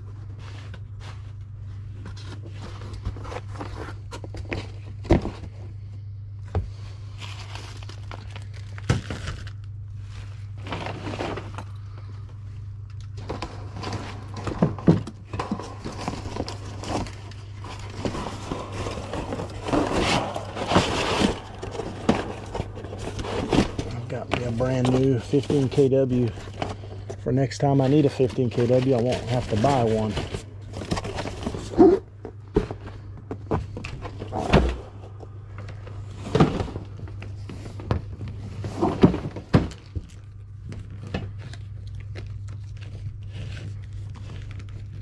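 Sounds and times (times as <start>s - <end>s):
steady low hum: 0.0s - 45.0s
rustling: 13.1s - 27.2s
knocks thumps and scrapes: 13.2s - 26.8s.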